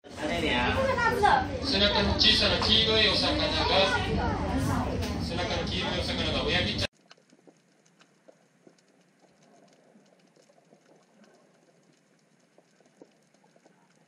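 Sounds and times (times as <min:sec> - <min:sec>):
underwater clicks and crackles: 0:06.9 - 0:14.0.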